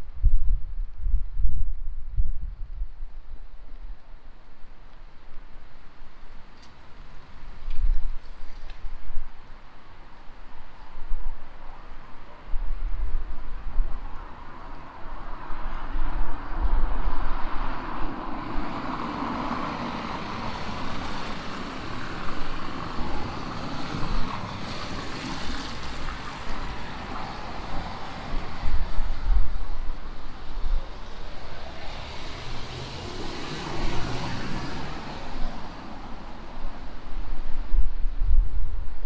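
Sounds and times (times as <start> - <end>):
car tyres hissing on wet road: 18.3 - 37.3.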